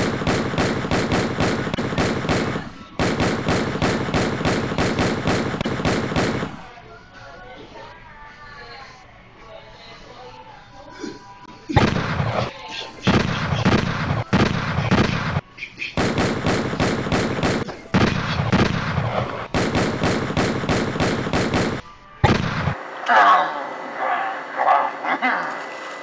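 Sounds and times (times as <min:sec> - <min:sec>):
automatic gunfire bursts: 0:00.0 - 0:06.7, 0:11.8 - 0:15.4, 0:16.0 - 0:22.8.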